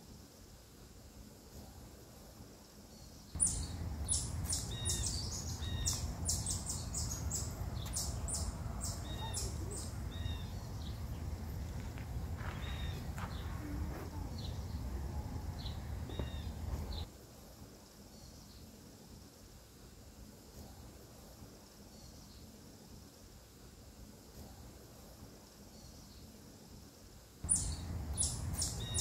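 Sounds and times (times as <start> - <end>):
birds chirping: 3.4 - 17.1, 27.4 - 29.0
low outdoor rumble: 3.4 - 17.1, 27.4 - 29.0.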